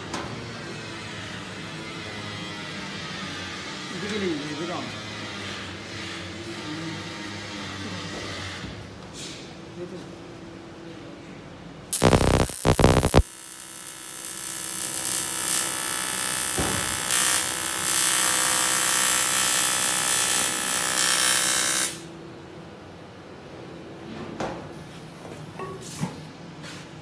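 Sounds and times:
welding arc crackling and buzzing: 0:11.9 - 0:22.1.

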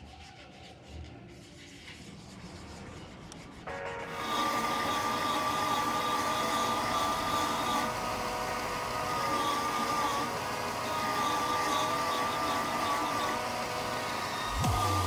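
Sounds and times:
sandpaper scratching: 0:00.0 - 0:15.0
belt sander whining: 0:04.1 - 0:15.0.

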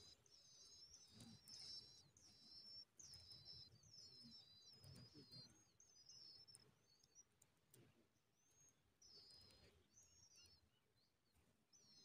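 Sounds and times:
nestlings chirping and squeaking: 0:00.0 - 0:12.0.

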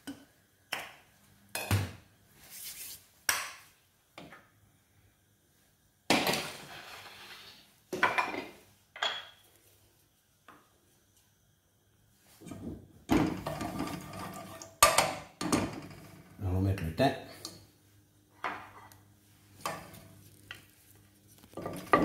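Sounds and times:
wooden spoon scraping a metal pot: 0:06.4 - 0:07.7, 0:13.4 - 0:14.7, 0:21.4 - 0:22.0.

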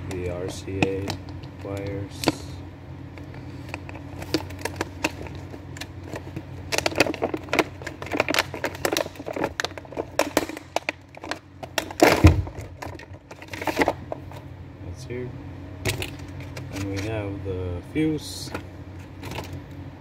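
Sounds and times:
faint low hum: 0:00.0 - 0:20.0
plastic packaging crackling: 0:03.2 - 0:14.4.

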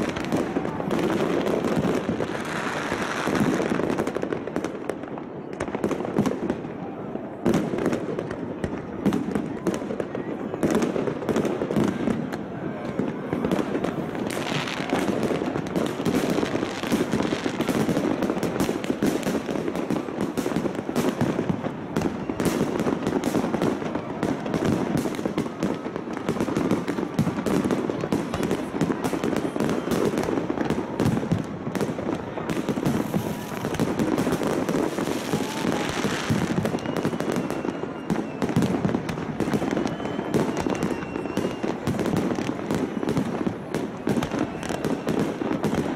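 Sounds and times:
fireworks bangs and crackles: 0:00.0 - 0:45.9
people's voices: 0:00.0 - 0:45.9.

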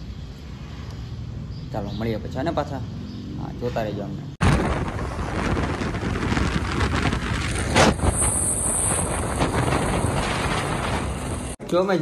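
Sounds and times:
road noise: 0:00.0 - 0:12.0
wind buffeting microphone: 0:04.4 - 0:11.6.

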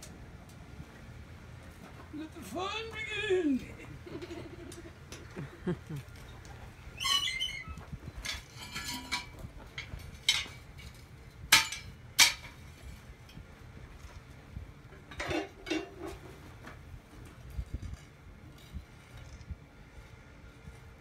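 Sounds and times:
metallic clanks: 0:08.2 - 0:12.6.

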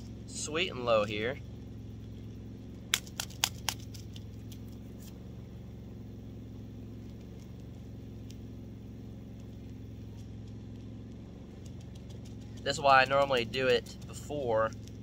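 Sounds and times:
generator engine humming: 0:00.0 - 0:15.0.

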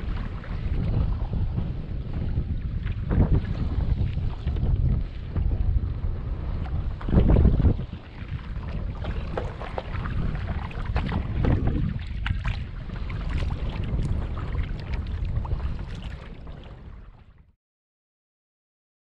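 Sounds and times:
wind on microphone: 0:00.0 - 0:17.5
water splashing and trickling: 0:07.0 - 0:17.5.

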